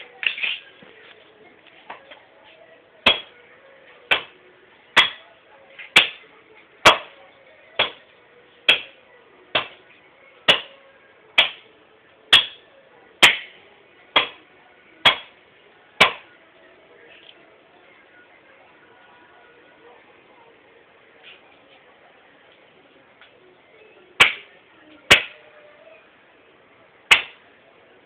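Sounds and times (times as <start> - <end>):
axe chopping wood: 3.1 - 3.3, 4.1 - 4.3, 5.0 - 5.2, 6.0 - 6.2, 6.9 - 7.1, 7.8 - 8.0, 8.7 - 8.9, 9.6 - 9.8, 10.5 - 10.7, 11.4 - 11.6, 12.3 - 12.6, 13.2 - 13.5, 14.2 - 14.4, 15.0 - 15.3, 16.0 - 16.2, 24.2 - 24.4, 25.1 - 25.4, 27.1 - 27.4.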